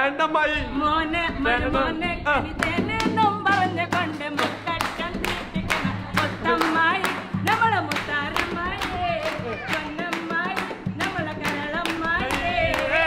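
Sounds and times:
person singing unaccompanied: 0.0 - 13.0
people clapping in time: 2.6 - 13.0.

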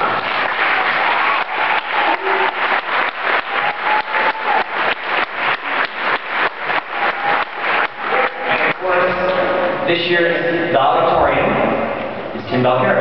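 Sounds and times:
audience applauding: 0.0 - 9.5
hands clapping close by: 0.2 - 9.4.

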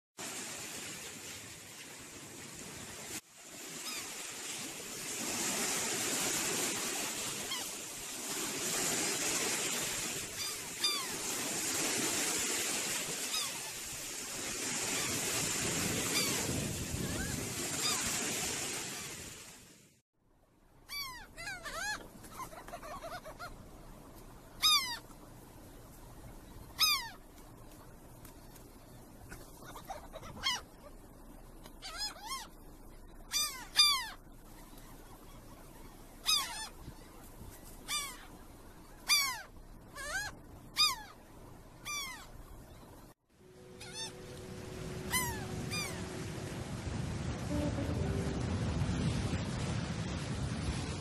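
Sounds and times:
surf washing on sand: 0.2 - 19.9, 43.4 - 51.0
gulls calling: 8.9 - 18.4, 20.9 - 23.6, 24.4 - 49.3.

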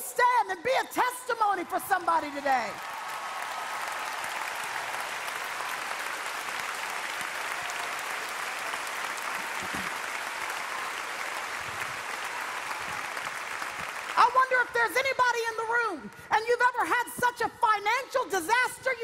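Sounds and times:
audience clapping: 1.5 - 15.5.

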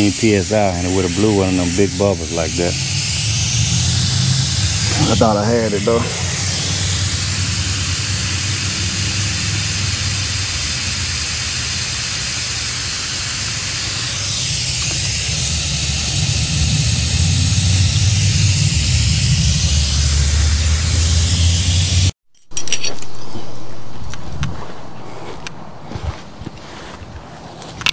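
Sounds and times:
gas hissing from a leak: 0.0 - 22.2
low rumble: 0.6 - 11.0, 14.2 - 22.1.

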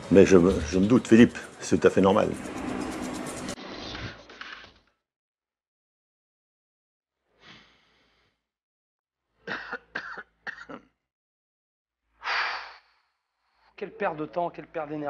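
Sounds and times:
person coughing: 9.5 - 11.0.

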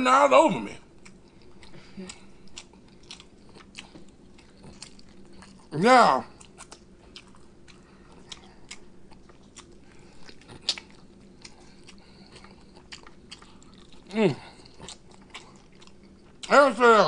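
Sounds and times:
person chewing with wet mouth clicks: 1.0 - 5.7, 6.3 - 16.5.

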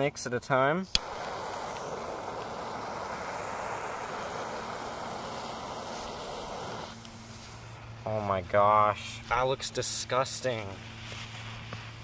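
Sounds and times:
torch lighter flame hissing: 0.8 - 7.8.

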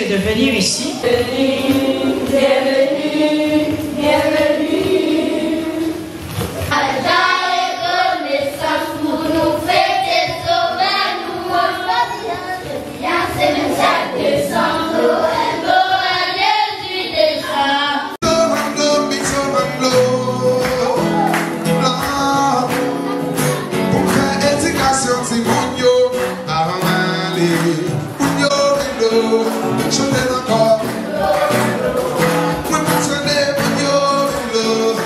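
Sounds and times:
children singing into a microphone: 1.0 - 21.2.

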